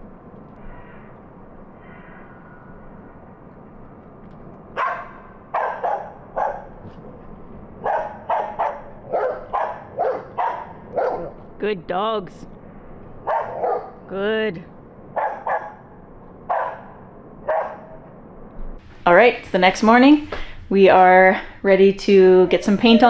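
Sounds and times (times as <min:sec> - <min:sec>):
dog barking: 0:04.8 - 0:06.8, 0:07.8 - 0:11.4, 0:13.2 - 0:14.1, 0:15.2 - 0:15.9, 0:16.5 - 0:18.0.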